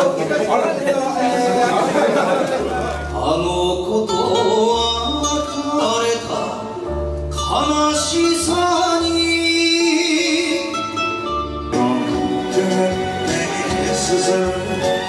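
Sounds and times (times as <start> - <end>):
small band playing: 0.0 - 15.0
man singing into a microphone: 2.8 - 15.0.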